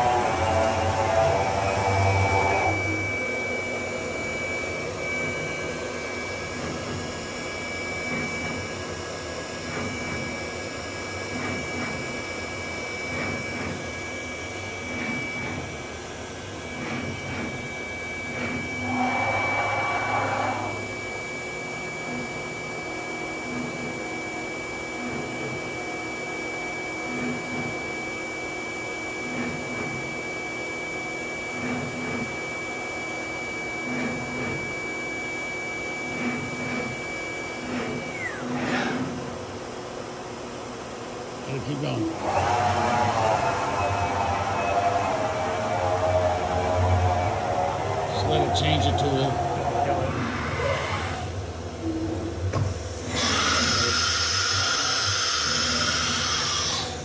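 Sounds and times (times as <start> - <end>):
cnc router spindle whine: 0.0 - 57.0.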